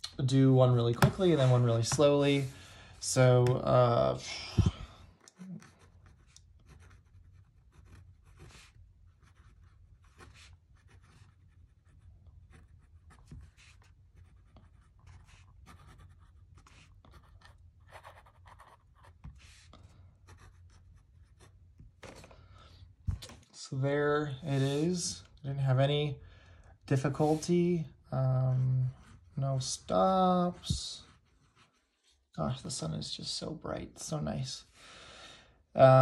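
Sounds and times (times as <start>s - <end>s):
fountain pen scratching on paper: 5.2s - 19.6s, 20.2s - 21.6s.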